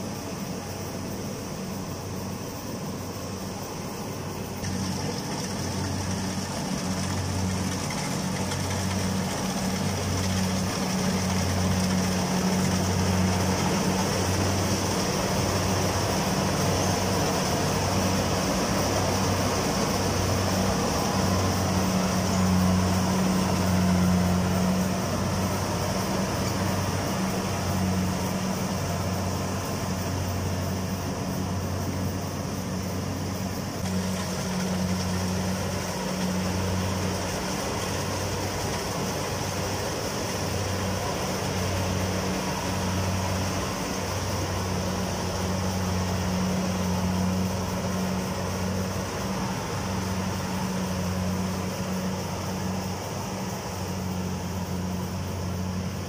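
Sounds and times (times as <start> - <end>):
combine harvester droning: 0.0 - 56.0.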